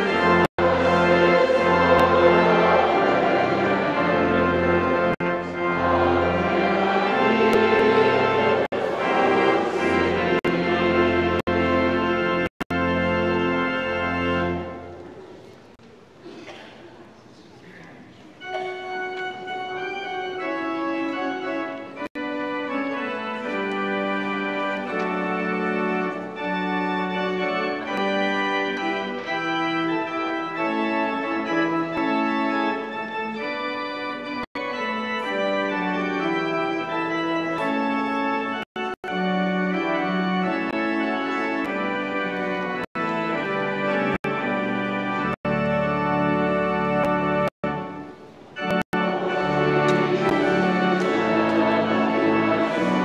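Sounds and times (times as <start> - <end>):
organ playing slow chords: 0.0 - 15.6, 18.4 - 53.0.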